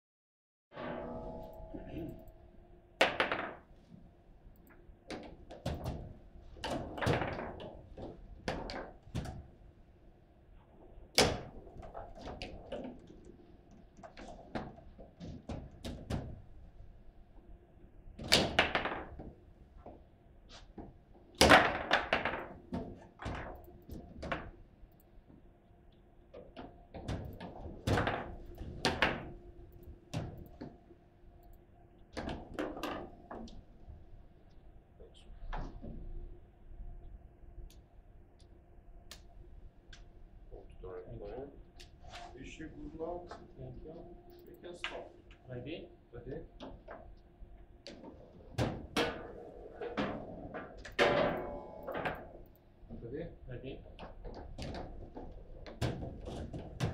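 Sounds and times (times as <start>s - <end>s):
foosball ball and rods knocking: 3.0s - 3.8s, 5.1s - 9.5s, 18.2s - 19.4s, 21.4s - 24.5s, 26.4s - 29.4s, 47.9s - 52.5s
faint steady hum: 15.4s - 56.9s.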